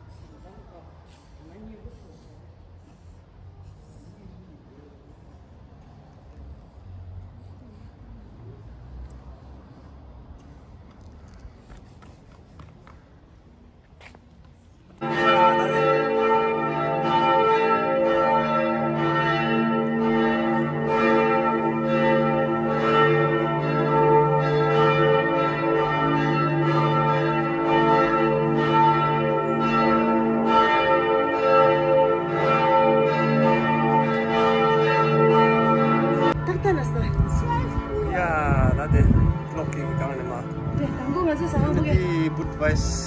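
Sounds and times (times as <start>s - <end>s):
church bells pealing: 15.0s - 43.0s.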